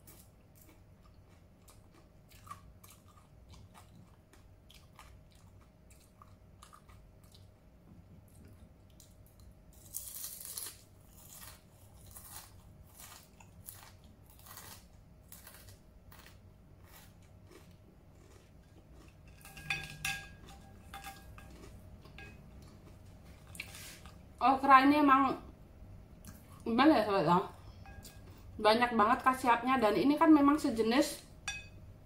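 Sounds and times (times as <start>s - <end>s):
chewing and crunching: 0.0s - 24.2s.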